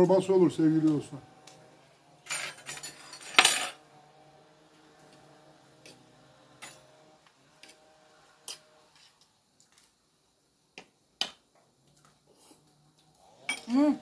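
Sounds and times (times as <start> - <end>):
cutlery clinking on plates: 8.4 - 9.2.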